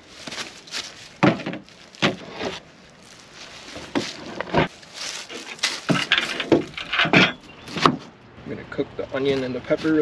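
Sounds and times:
cooking gear knocking and clattering: 5.9s - 7.4s.

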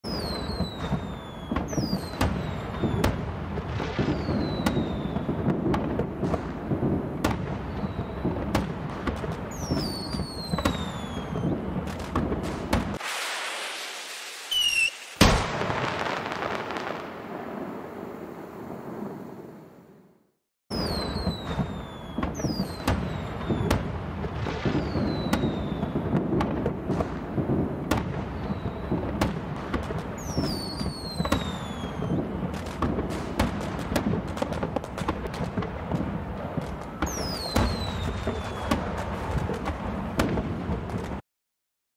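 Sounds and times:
firework whistles falling in pitch: 0.0s - 3.2s, 4.0s - 5.6s, 7.7s - 8.5s, 9.5s - 11.7s, 12.9s - 17.1s, 20.7s - 23.9s, 24.5s - 26.2s, 28.4s - 29.2s, 30.2s - 32.4s, 36.8s - 39.0s
fireworks bangs: 0.0s - 20.0s, 20.7s - 41.2s.

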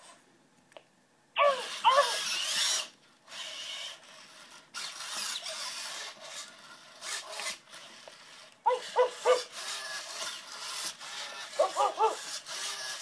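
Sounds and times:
robot dog barks from speaker: 1.4s - 2.2s, 8.7s - 9.5s, 11.6s - 12.3s
harsh rasping noise: 1.4s - 13.0s.

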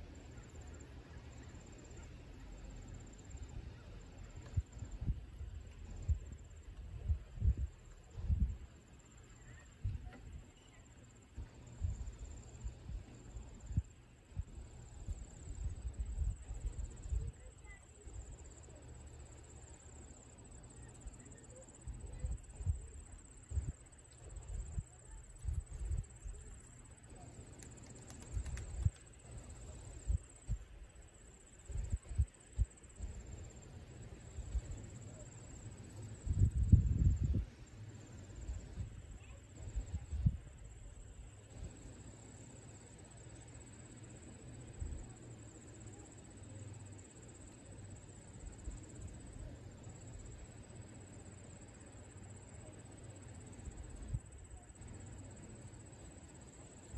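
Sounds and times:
wind buffeting microphone: 36.3s - 37.5s.

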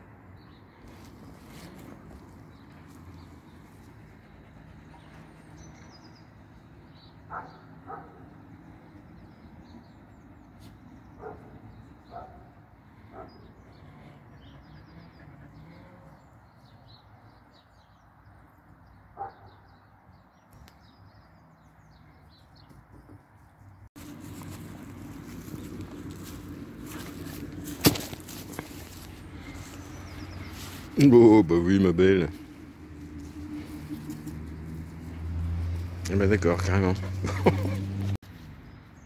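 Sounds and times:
small birds chirping: 0.3s - 39.0s
dog barking: 7.3s - 8.2s, 11.2s - 12.5s, 13.1s - 13.4s, 19.2s - 19.6s
low outdoor rumble: 24.0s - 31.0s.

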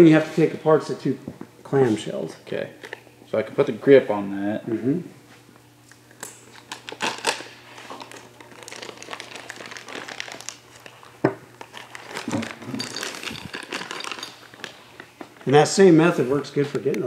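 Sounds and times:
rustling and clicking of parts: 11.6s - 15.6s.

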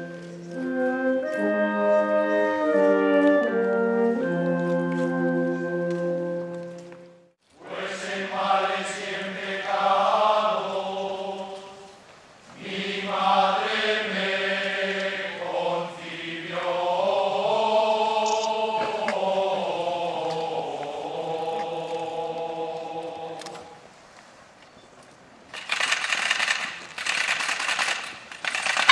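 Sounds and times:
men chanting a hymn in unison: 7.6s - 12.0s, 12.6s - 23.9s.

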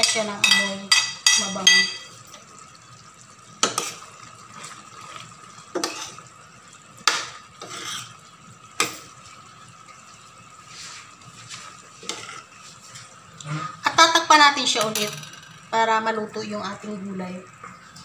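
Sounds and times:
spoon knocking against pan: 0.0s - 2.1s
sauce simmering hiss: 2.1s - 14.4s.

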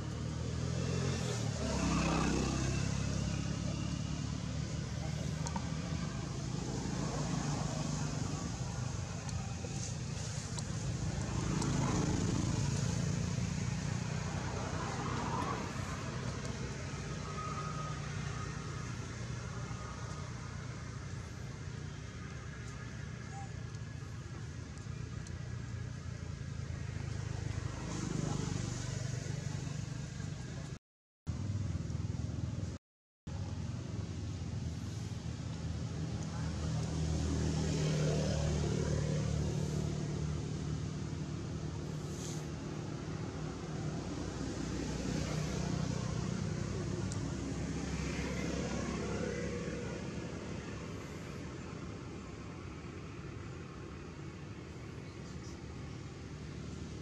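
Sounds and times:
low outdoor rumble and hiss: 33.3s - 37.4s.

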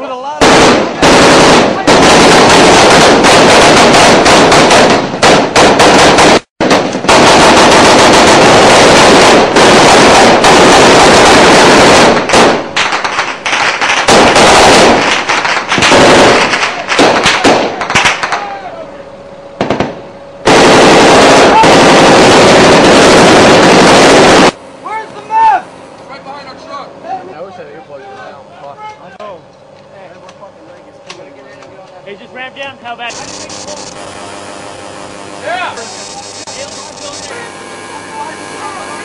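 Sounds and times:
heavy automatic gunfire: 0.4s - 18.4s, 19.6s - 24.6s, 33.1s - 34.0s.

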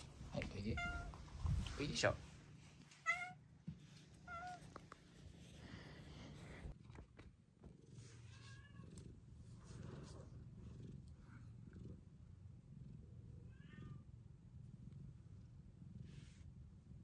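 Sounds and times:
soft cat meows: 0.7s - 1.2s, 3.0s - 3.4s, 4.2s - 4.8s, 8.2s - 9.1s, 13.5s - 14.1s
cat purring: 4.6s - 17.0s.

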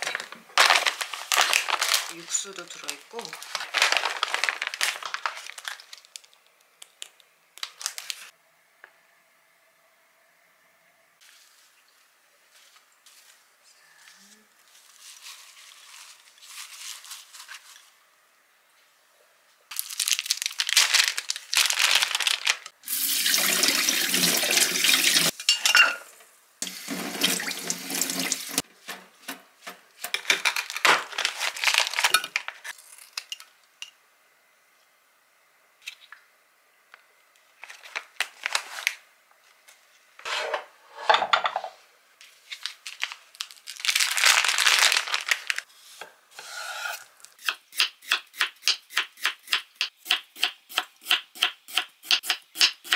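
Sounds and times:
plastic wrapping rustling: 0.0s - 8.3s, 14.1s - 18.0s, 19.7s - 22.8s, 27.2s - 32.8s, 37.5s - 40.0s, 42.2s - 45.7s
faucet running into sink: 22.9s - 25.3s, 26.6s - 28.6s.

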